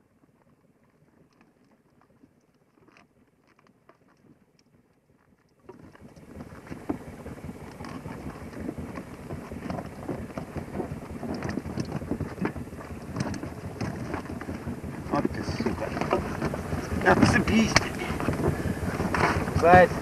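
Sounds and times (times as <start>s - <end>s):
small crackles and clicks: 0.0s - 20.0s
wind buffeting microphone: 5.7s - 20.0s.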